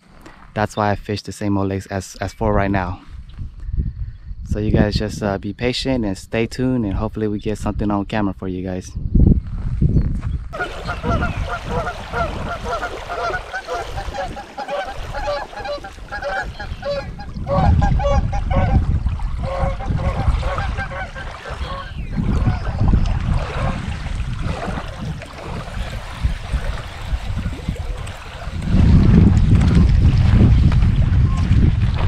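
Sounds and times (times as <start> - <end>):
wind rumbling on microphone: 0.0 - 32.0
geese honking: 10.6 - 18.8, 19.4 - 22.8.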